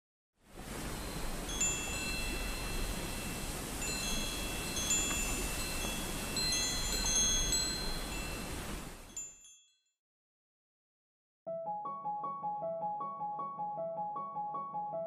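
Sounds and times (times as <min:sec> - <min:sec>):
steady hiss: 0:00.5 - 0:09.2
tinkling chimes: 0:00.7 - 0:09.9.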